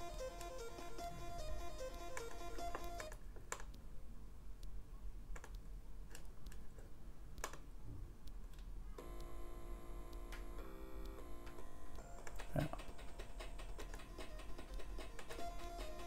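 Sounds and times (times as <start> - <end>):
chip music notes: 0.0 - 3.2, 9.0 - 16.0.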